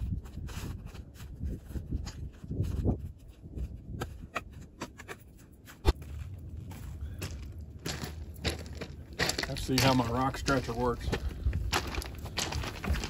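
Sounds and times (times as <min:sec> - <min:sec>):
footsteps crunching on gravel: 0:05.5 - 0:13.0.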